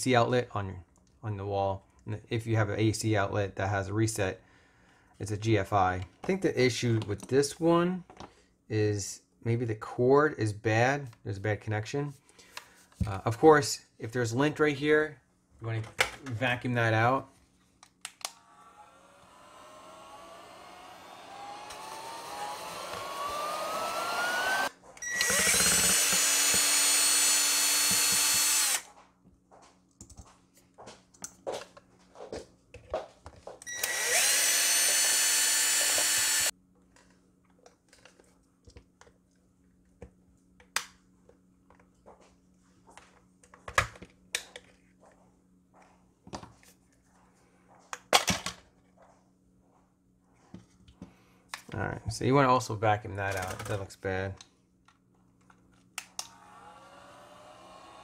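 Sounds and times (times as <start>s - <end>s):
mini vacuum whining: 18.2s - 28.9s, 33.6s - 36.5s, 56.1s - 58.0s
cordless drill running: 18.4s - 28.9s, 33.6s - 36.5s, 56.2s - 58.0s.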